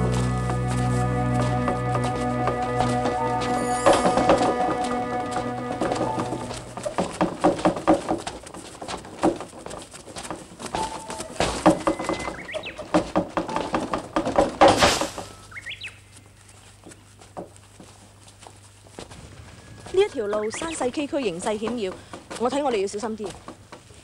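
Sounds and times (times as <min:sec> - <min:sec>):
footsteps on dry ground: 0:00.0 - 0:14.4, 0:15.0 - 0:24.0
wooden cart wheels creaking: 0:00.0 - 0:24.0
rising bird chirps: 0:19.4 - 0:21.0.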